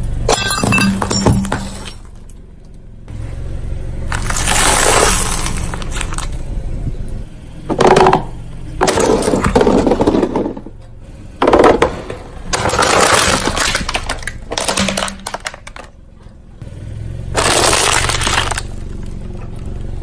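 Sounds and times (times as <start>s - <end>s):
tyre crushing brittle plastic: 4.1s - 6.4s, 12.5s - 15.9s, 17.4s - 19.1s.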